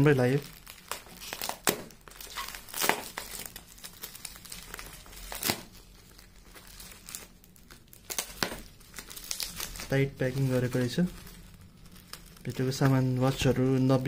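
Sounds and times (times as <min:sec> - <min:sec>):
bubble wrap crackling: 0:00.0 - 0:14.0
knife cutting plastic: 0:00.9 - 0:03.5.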